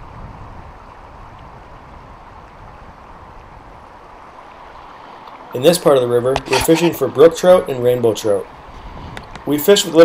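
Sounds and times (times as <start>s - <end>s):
wind on microphone: 0.0s - 4.2s, 8.6s - 9.4s
river water rushing: 2.2s - 7.3s.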